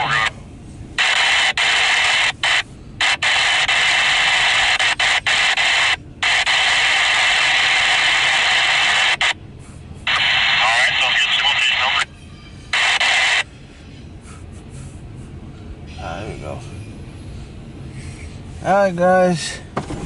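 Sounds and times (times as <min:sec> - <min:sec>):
radio scanner static hiss: 0:00.0 - 0:12.1, 0:12.7 - 0:13.6.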